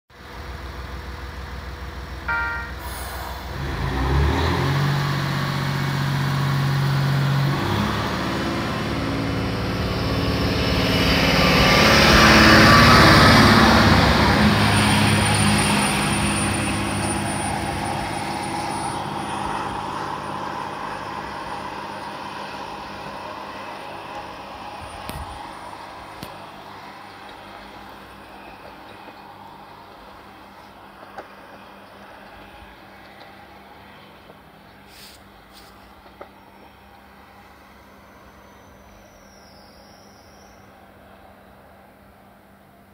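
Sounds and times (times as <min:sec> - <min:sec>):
diesel railcar engine accelerating: 0:00.1 - 0:42.9
brief high tone: 0:02.3 - 0:03.2
thin high whine: 0:02.3 - 0:03.3.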